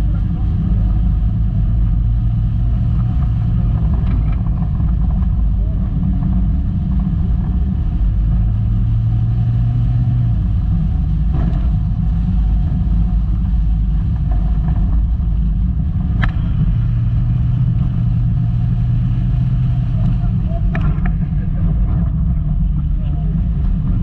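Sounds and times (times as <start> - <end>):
car rumbling over rough ground: 0.0 - 24.0.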